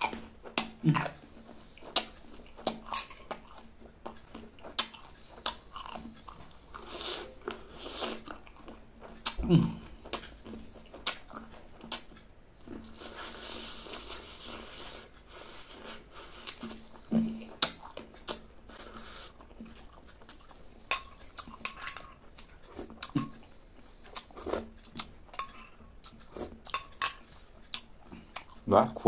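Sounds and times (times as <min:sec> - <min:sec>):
person chewing and sucking fruit: 0:00.0 - 0:29.0
soft sucking hiss: 0:00.1 - 0:29.0.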